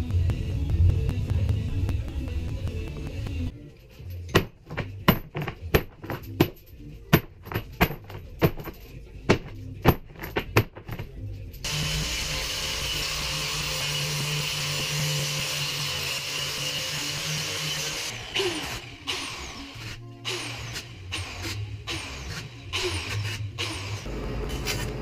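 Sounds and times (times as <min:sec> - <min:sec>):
electric orbital sander: 0:11.7 - 0:18.7.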